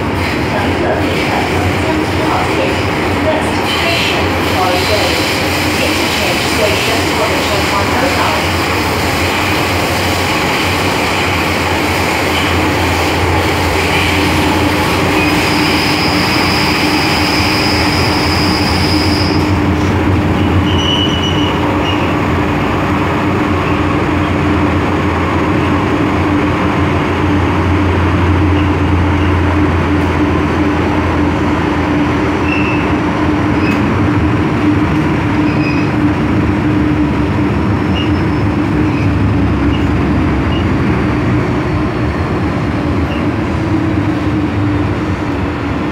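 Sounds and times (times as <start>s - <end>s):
train rolling rumble: 0.0s - 45.9s
wheel squeals: 20.4s - 22.1s, 32.4s - 32.9s.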